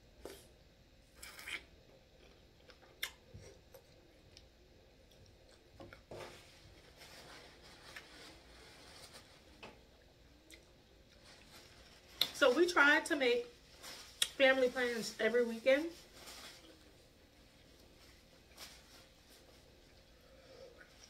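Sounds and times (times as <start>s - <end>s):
paper towel rustling: 6.1s - 9.6s, 11.2s - 20.0s.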